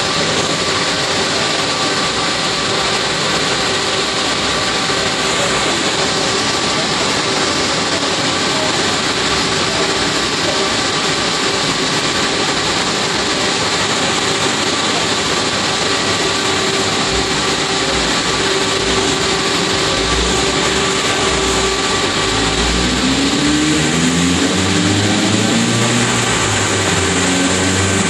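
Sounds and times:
large cooling fan rushing: 0.0s - 28.0s.

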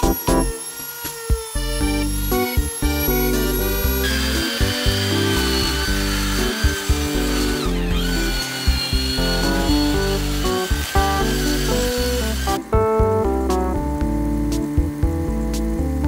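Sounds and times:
rotary tool whining: 0.0s - 12.7s
background music: 0.0s - 16.0s.

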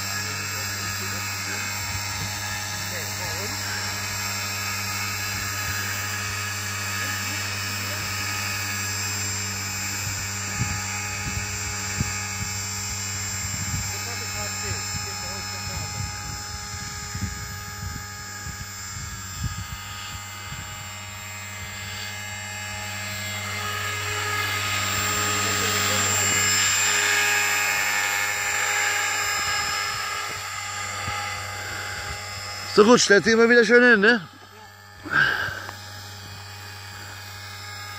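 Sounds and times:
high motor whine: 0.0s - 37.9s
rc helicopter rotor hum: 0.0s - 37.9s.

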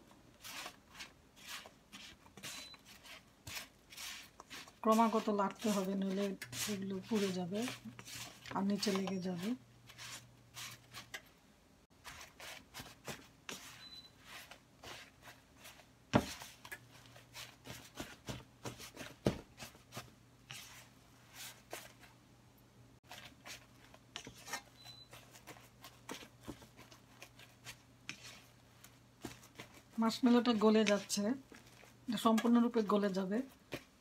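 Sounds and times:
spatula scraping a frying pan: 0.4s - 11.2s, 23.1s - 28.5s.

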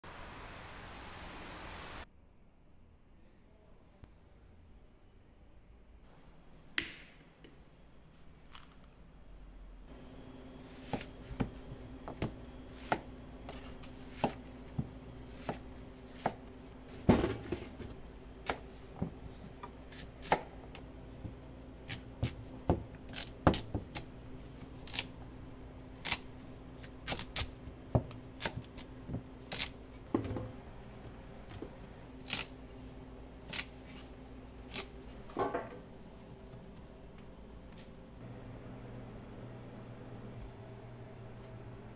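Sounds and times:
steady low hum: 7.6s - 41.9s
knife chopping on cutting board: 10.8s - 16.4s.

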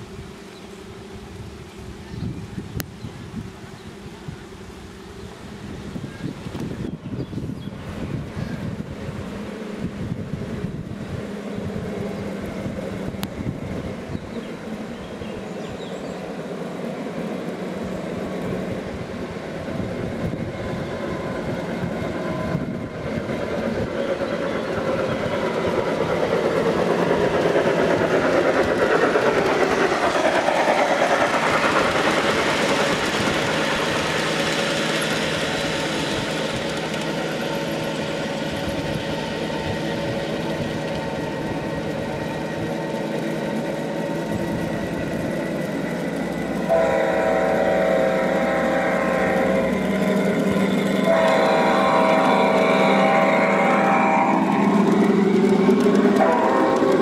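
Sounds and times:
model train rolling rumble: 0.0s - 57.0s
train horn: 46.6s - 55.2s, 55.8s - 57.0s.

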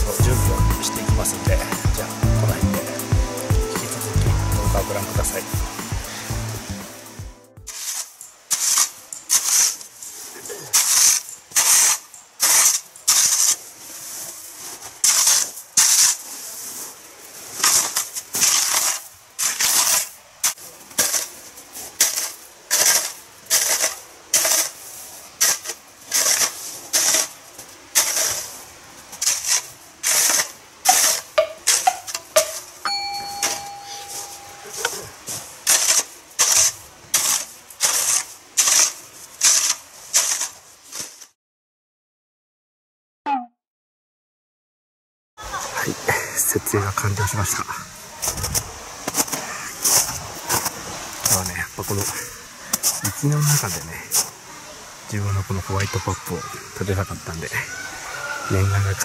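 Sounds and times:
steady tone: 0.0s - 7.7s, 32.8s - 35.2s
shovel scraping snow: 7.7s - 31.9s, 33.2s - 41.4s, 48.2s - 51.4s.

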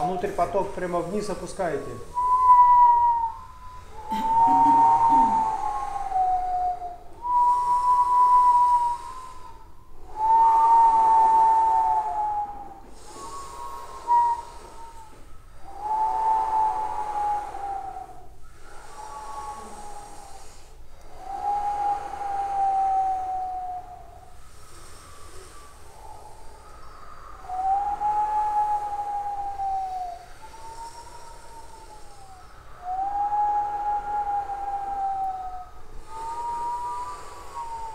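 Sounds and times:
throat singing: 0.0s - 7.4s
breaths: 0.0s - 37.9s.

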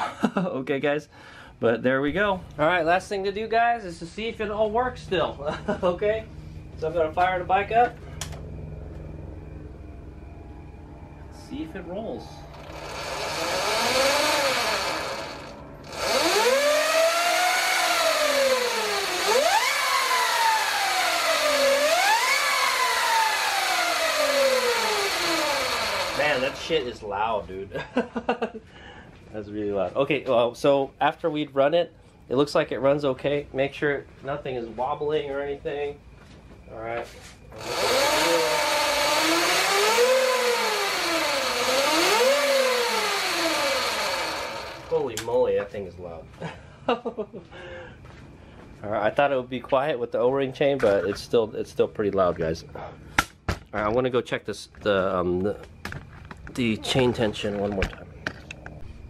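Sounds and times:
electric motor whine: 7.5s - 27.0s, 37.5s - 45.2s.

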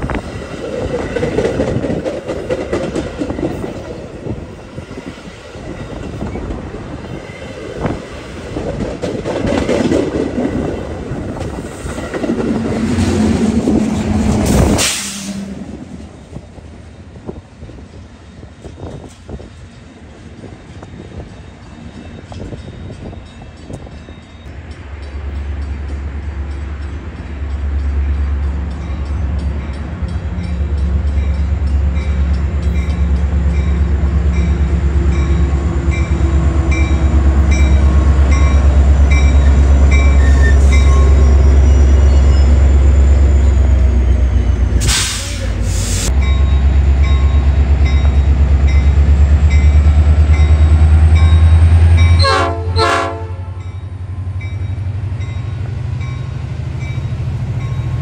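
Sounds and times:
diesel locomotive engine drone: 0.0s - 58.0s
burst of hiss: 14.7s - 15.5s, 44.8s - 46.1s
locomotive bell ringing: 18.2s - 44.6s, 46.1s - 58.0s
train horn: 52.1s - 53.8s.

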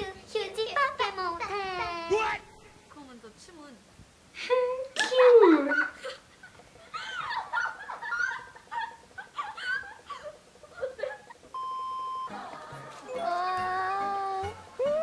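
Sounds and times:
high test-tone beep: 11.6s - 12.4s.

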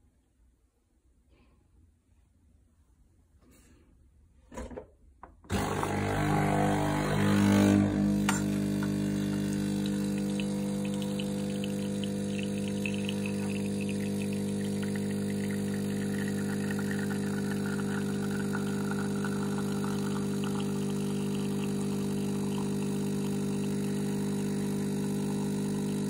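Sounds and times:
coffee machine pump humming: 5.5s - 26.0s.

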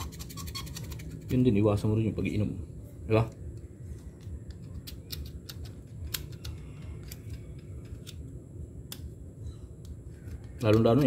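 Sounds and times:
low steady hum: 0.0s - 11.0s
metallic clicks and taps: 4.2s - 8.2s.

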